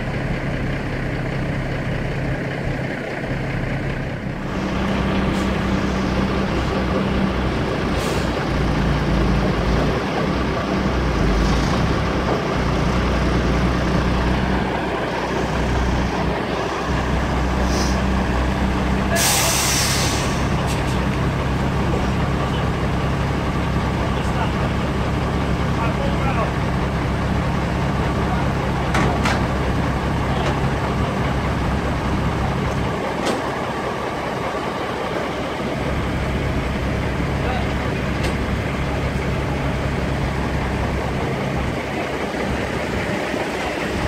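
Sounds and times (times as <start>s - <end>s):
diesel lorry engine idling: 0.0s - 44.0s
air brake hiss: 8.0s - 8.3s, 17.6s - 18.0s, 19.2s - 20.6s.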